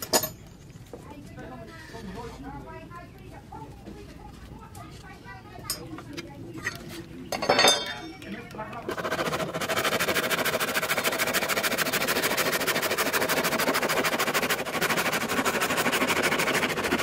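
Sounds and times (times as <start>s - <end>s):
hand saw cutting wood: 8.9s - 17.0s.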